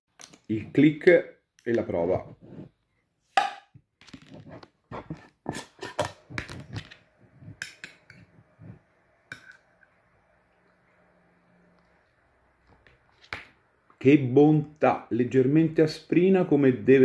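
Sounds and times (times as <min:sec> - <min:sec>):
teaspoon scraping glass jar: 0:04.3 - 0:06.8.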